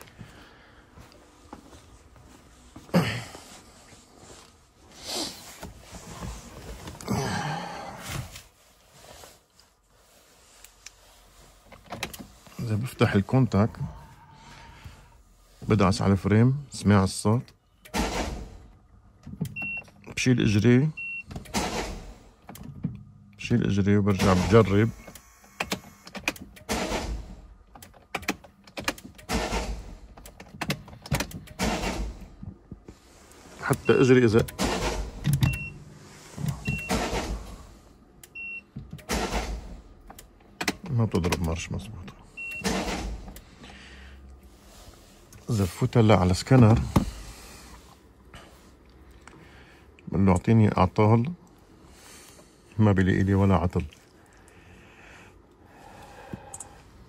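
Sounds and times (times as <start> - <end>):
rustling against car seat: 1.0 - 7.1, 7.9 - 13.6
starter motor whirring: 33.9 - 37.8, 42.4 - 43.5.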